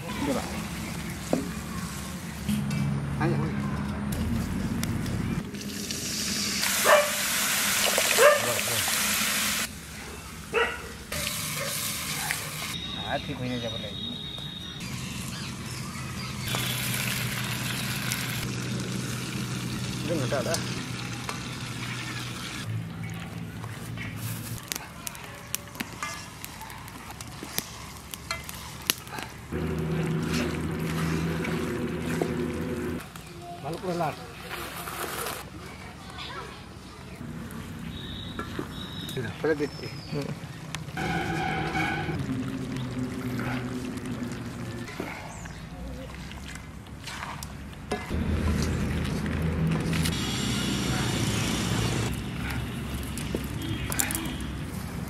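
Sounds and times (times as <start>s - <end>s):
water hissing in hot wok: 5.5s - 9.7s, 11.1s - 12.8s, 16.5s - 22.7s, 50.1s - 52.2s
dog yelping: 6.8s - 7.2s, 10.5s - 12.3s
steady low motor hum: 29.5s - 33.0s, 41.0s - 44.9s.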